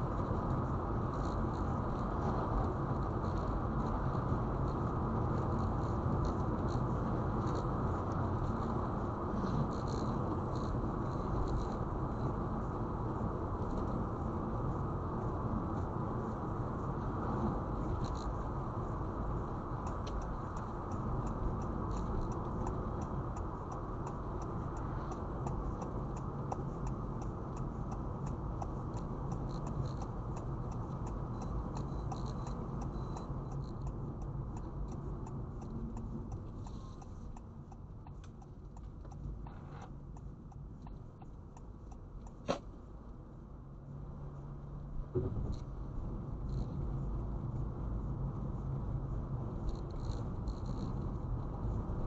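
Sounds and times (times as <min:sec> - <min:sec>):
car road and engine noise: 0:00.0 - 0:52.0
faint ticks: 0:05.4 - 0:12.3, 0:15.8 - 0:42.7, 0:45.1 - 0:52.0
sharp click: 0:42.3 - 0:42.7.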